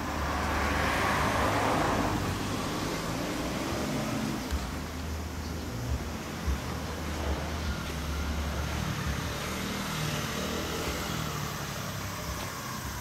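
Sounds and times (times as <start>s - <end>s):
low rumble of vehicle noise: 0.0s - 13.0s.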